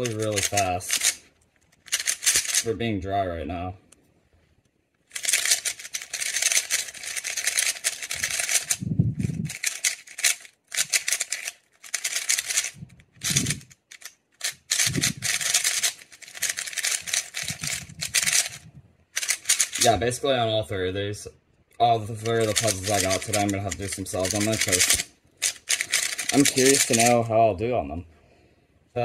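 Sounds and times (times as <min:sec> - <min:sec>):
speed cube clicking and rattling: 0:00.0 - 0:02.7, 0:05.1 - 0:08.8, 0:09.4 - 0:20.0, 0:22.2 - 0:27.2.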